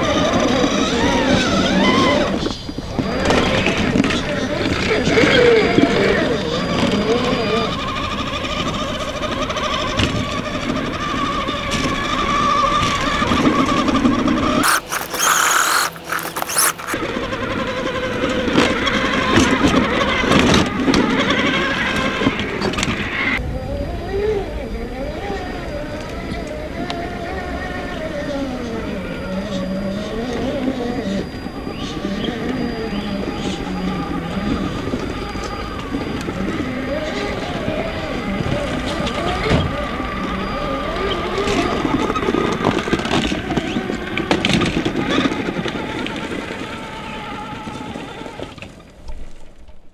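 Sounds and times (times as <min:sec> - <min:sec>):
electric motor and gears whining: 0:14.6 - 0:17.0
tyres scraping on stone: 0:14.6 - 0:17.0.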